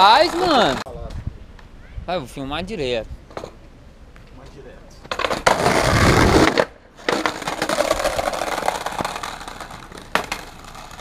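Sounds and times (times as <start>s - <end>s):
skateboard wheels rolling on paving: 0.0s - 0.8s, 5.0s - 11.0s
skateboard knock: 6.5s - 10.8s.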